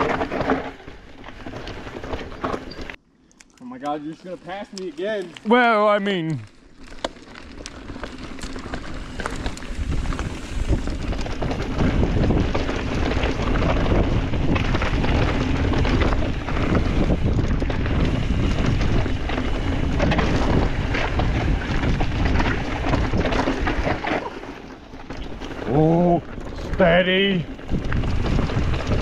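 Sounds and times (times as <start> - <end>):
bike clicks and rattles: 0.0 - 5.6, 6.2 - 29.0
tyres on trail: 0.0 - 29.0
wind rushing over microphone: 8.8 - 24.1, 25.6 - 29.0.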